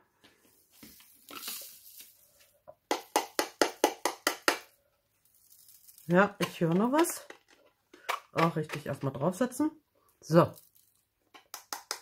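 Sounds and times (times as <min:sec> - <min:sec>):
rhinestones rustling into tray: 0:00.6 - 0:02.5, 0:05.2 - 0:07.6.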